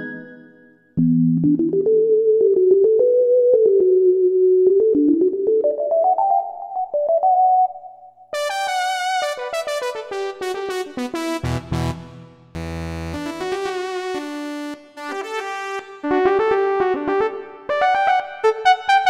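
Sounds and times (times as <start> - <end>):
synthesizer melody: 0.0 - 8.2.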